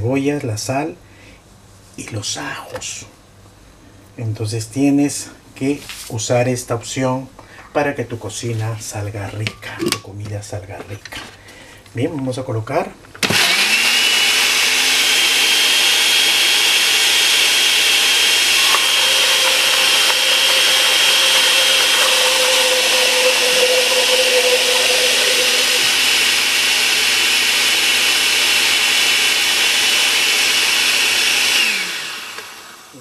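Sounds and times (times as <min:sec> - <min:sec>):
blender motor whine: 0:13.2 - 0:33.0
food churning in blender: 0:13.2 - 0:33.0.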